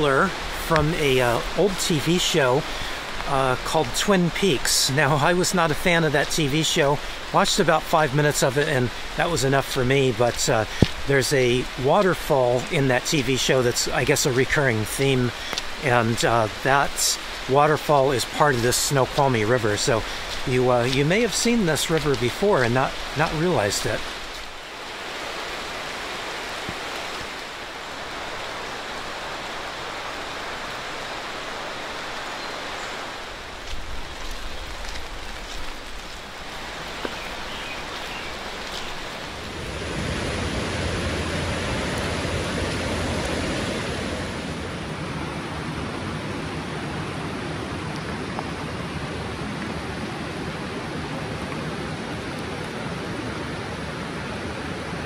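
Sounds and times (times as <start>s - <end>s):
rain falling on river: 0.0s - 55.0s
river rushing over rocks: 0.0s - 55.0s.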